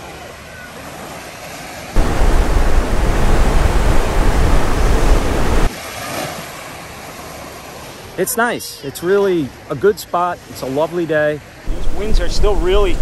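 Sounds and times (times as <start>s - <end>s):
strong wind buffeting microphone: 2.0s - 5.7s, 11.7s - 13.0s.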